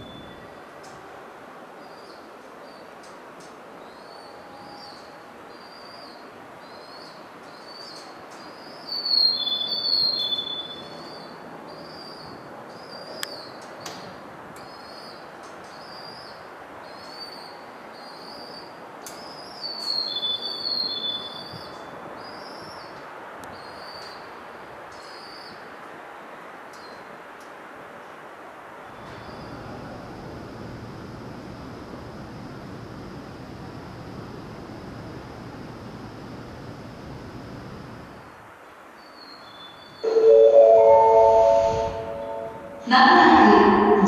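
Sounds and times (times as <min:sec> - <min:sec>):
steady background noise: 0:00.0 - 0:44.0
bird chirping: 0:03.8 - 0:13.5, 0:39.0 - 0:40.3.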